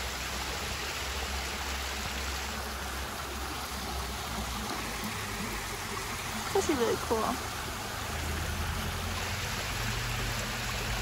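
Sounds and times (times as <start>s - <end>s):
road and wind noise in car: 2.5s - 11.0s.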